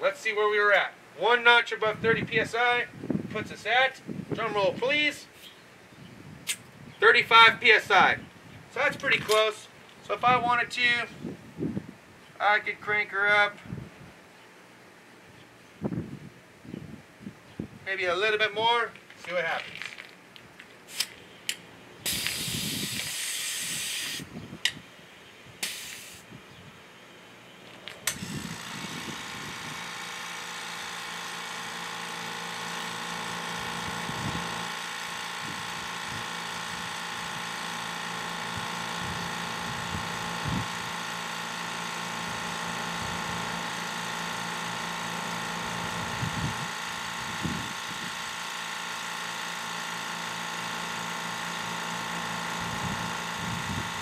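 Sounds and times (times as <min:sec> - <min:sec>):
air hissing: 0:20.9 - 0:21.2, 0:22.0 - 0:24.3, 0:25.6 - 0:26.3
air compressor motor running: 0:22.0 - 0:24.5, 0:25.6 - 0:26.4, 0:27.7 - 0:54.0
tire chuck clicks: 0:27.7 - 0:54.0.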